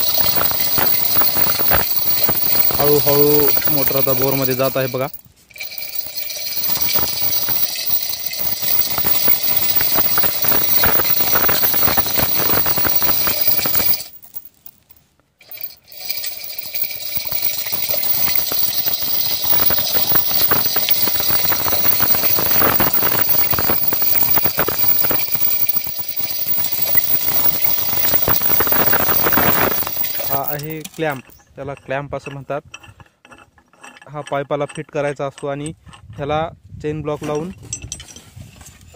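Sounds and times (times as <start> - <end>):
chain rattling and clinking: 0.0 - 31.5.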